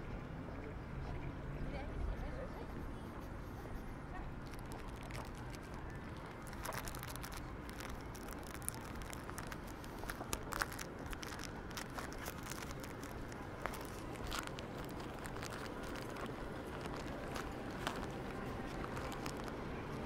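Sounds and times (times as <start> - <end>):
low outdoor rumble: 0.0 - 20.0
footsteps walking: 4.4 - 20.0.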